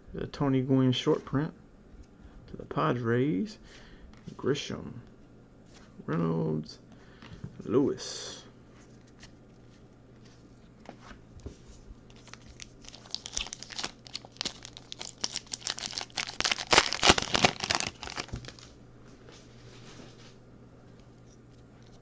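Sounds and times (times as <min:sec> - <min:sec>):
card pack wrapper crinkling: 0:12.1 - 0:18.7.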